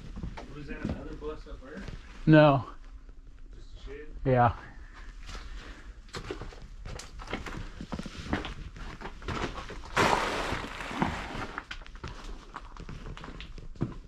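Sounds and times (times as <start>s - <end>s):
loud noisy scrape: 10.0s - 11.7s.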